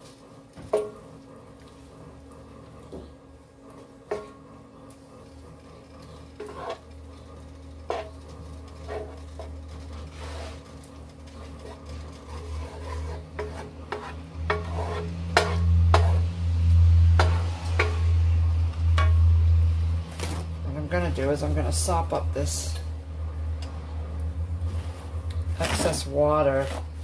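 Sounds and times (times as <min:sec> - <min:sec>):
low hum: 0:02.1 - 0:27.0
light sizzle: 0:03.6 - 0:25.7
spatula scraping skillet: 0:05.8 - 0:18.3.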